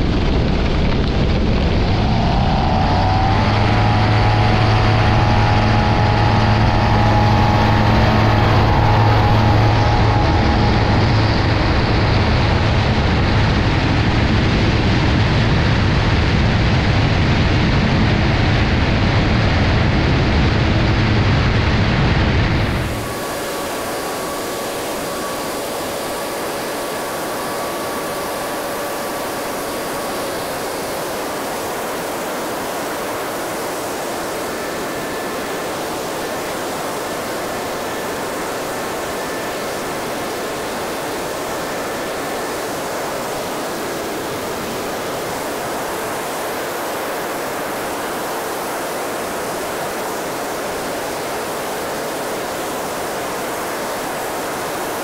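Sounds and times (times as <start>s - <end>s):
wind rushing: 0.0s - 31.1s
faint engine tone: 1.2s - 15.0s, 18.0s - 55.0s.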